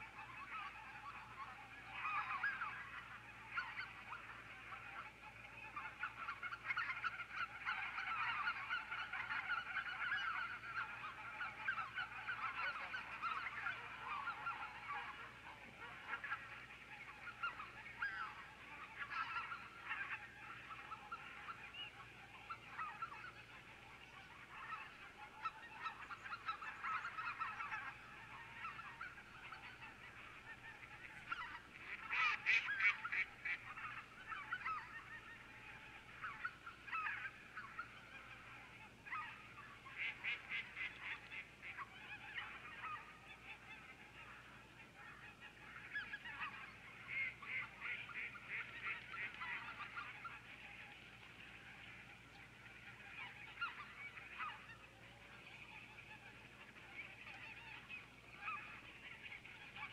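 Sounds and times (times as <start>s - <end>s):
geese honking: 0.0s - 59.9s.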